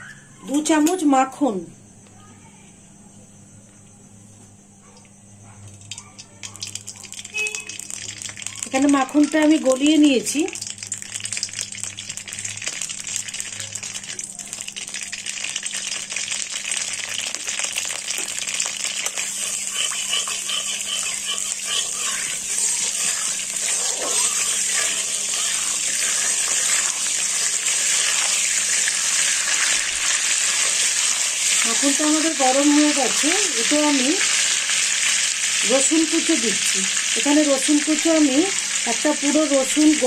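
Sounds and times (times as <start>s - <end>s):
butter and oil sizzling: 5.7s - 40.0s
steel spatula stirring: 19.0s - 31.7s.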